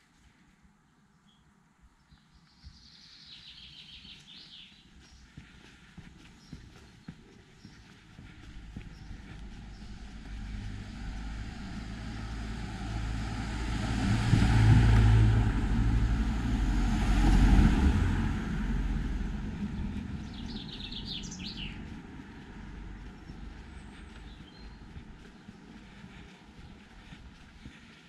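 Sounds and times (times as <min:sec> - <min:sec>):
motor vehicle passing by: 0:07.6 - 0:28.0.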